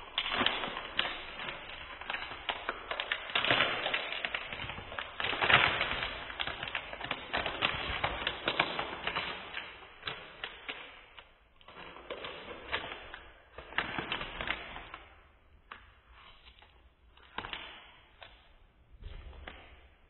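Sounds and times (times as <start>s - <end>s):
foil wrapper crinkling and tearing: 0.0s - 15.2s.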